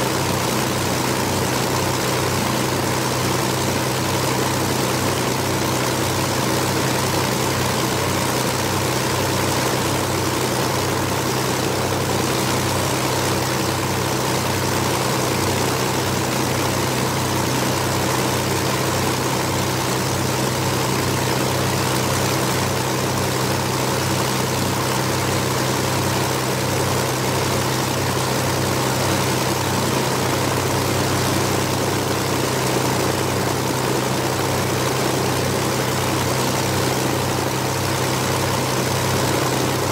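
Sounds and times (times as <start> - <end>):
aircraft propeller engines throbbing: 0.0 - 39.9.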